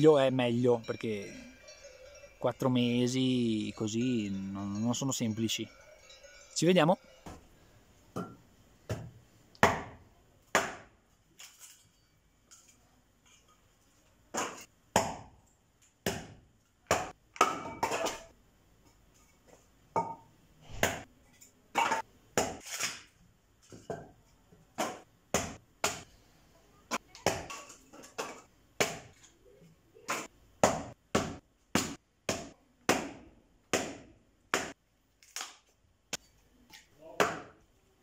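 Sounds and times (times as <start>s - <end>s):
hatchet chopping kindling: 8.9s - 10.9s, 14.3s - 15.3s, 16.0s - 17.6s, 24.8s - 26.1s, 28.8s - 29.1s, 30.1s - 34.8s, 37.1s - 37.5s.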